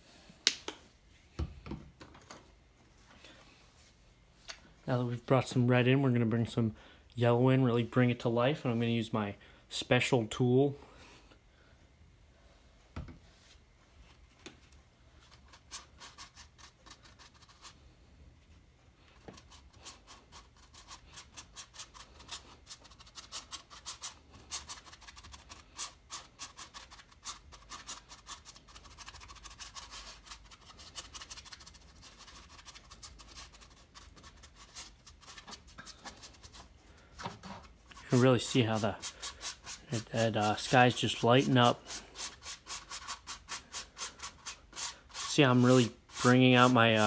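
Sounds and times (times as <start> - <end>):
foam brush scrubbing on canvas: 19.4 - 36.8, 37.6 - 47.0.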